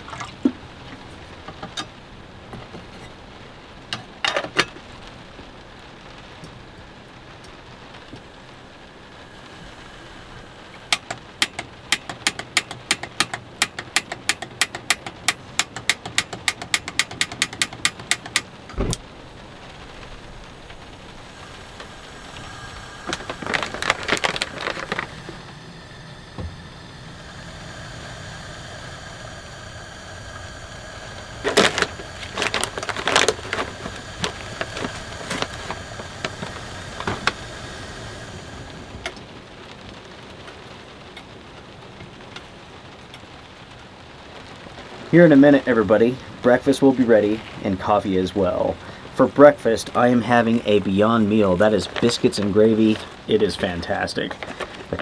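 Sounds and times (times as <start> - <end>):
steady rain: 0.0 - 55.0
stove igniter clicking: 10.9 - 19.0
thump: 18.8 - 19.0
cooking gear clattering: 21.7 - 25.5, 31.0 - 37.5.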